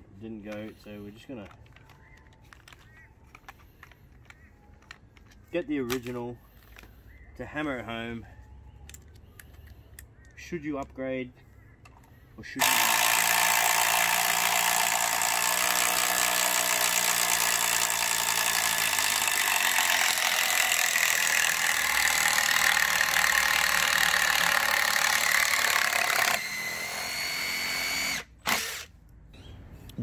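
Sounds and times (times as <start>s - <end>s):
impact driver rattling: 12.6s - 28.9s.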